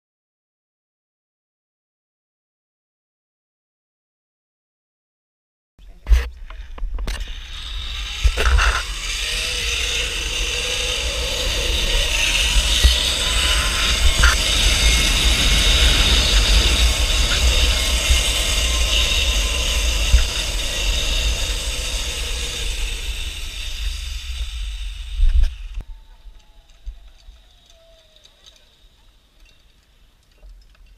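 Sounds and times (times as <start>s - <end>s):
zip-line pulleys whirring on cable: 7.0s - 30.8s
wind buffeting microphone: 7.7s - 25.9s.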